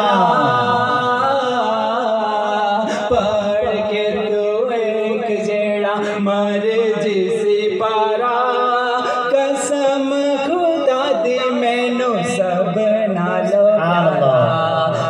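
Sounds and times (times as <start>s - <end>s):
man chanting: 0.0s - 15.0s.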